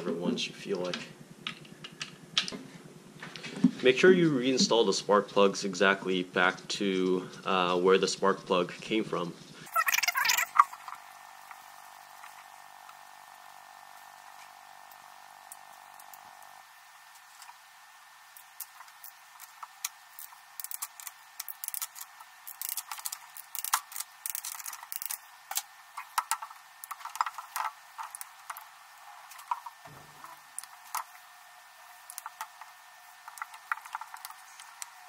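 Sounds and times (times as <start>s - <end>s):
spark plug wires clicking and rattling: 9.9s - 35.0s.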